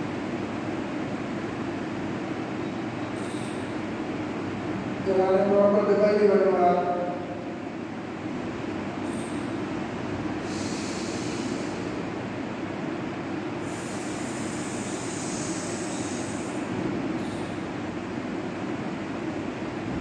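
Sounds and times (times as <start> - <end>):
hissing in-breaths through mouth: 10.4 - 12.0, 13.6 - 16.6.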